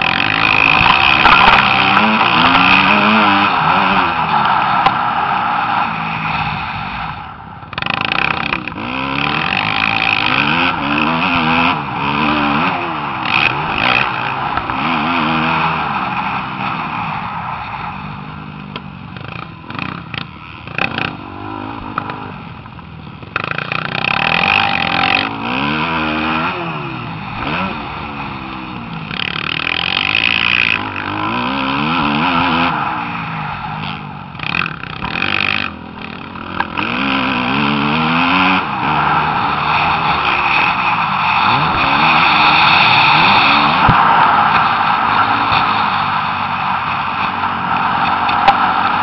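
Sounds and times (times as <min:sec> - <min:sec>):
dirt bike engine revving: 0:00.0 - 0:49.0
steady rushing noise: 0:00.0 - 0:49.0.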